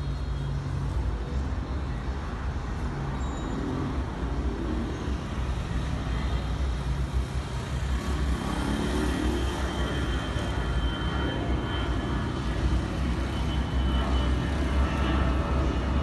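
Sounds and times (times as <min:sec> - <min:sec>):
jet engines roaring: 0:03.0 - 0:16.0.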